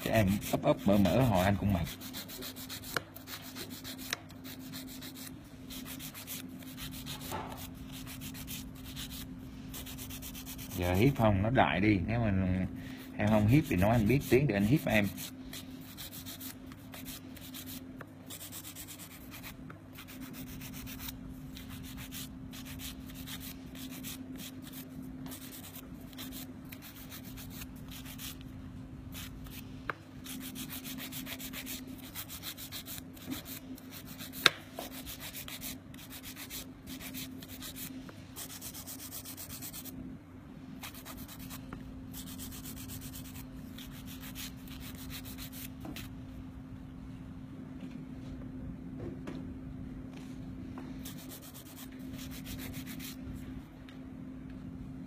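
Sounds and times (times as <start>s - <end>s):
nail file rasping: 1.8s - 10.8s, 13.3s - 28.4s, 29.1s - 29.6s, 30.2s - 39.9s, 40.8s - 45.7s.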